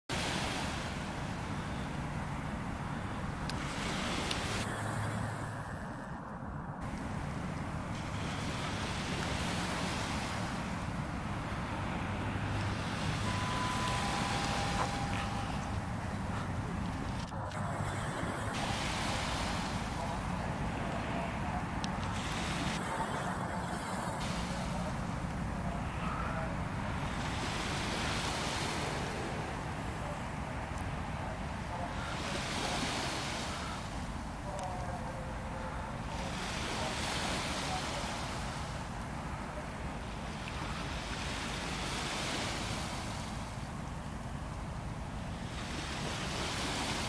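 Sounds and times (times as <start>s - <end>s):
ferry engine drone: 0.2s - 41.7s
whistle-like tones: 13.2s - 16.0s.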